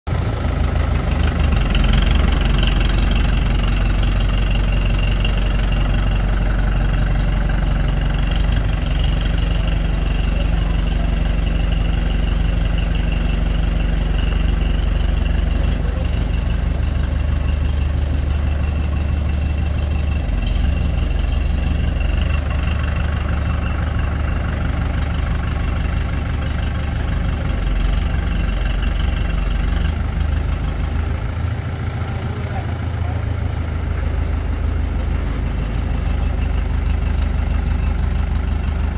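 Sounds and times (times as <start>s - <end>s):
heavy engine running: 0.1s - 38.9s.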